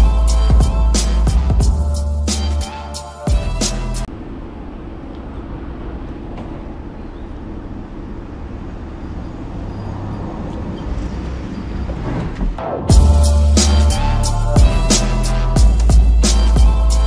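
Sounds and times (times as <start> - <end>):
vehicle engine and road noise: 3.4 - 17.0.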